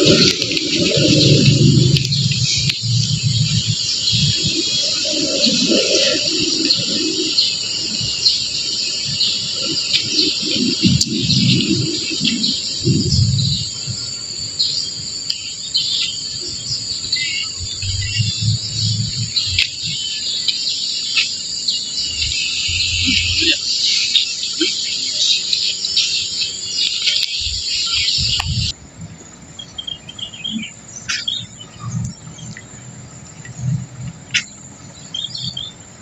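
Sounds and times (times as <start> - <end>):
low rumble: 0.0 - 5.9, 17.6 - 20.0, 22.0 - 23.6
birds chirping: 0.0 - 36.0
insects: 0.0 - 36.0.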